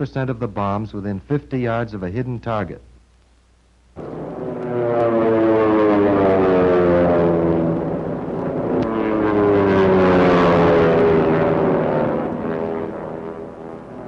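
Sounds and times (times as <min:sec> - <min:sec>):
propeller plane engine drone: 0:04.0 - 0:14.0.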